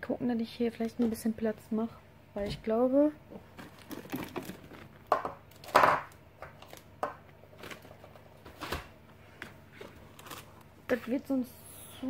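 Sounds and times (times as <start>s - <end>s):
packaging rustling and scraping: 3.4s - 5.9s, 6.5s - 11.2s.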